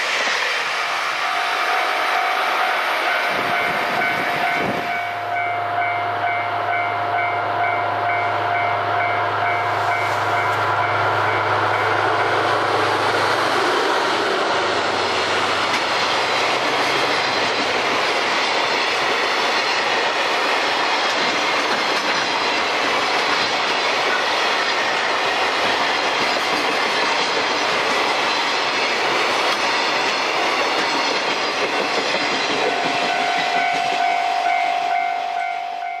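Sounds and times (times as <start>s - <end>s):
train wheels on rails: 0.0s - 36.0s
crossing bell ringing: 1.2s - 12.6s, 32.4s - 36.0s.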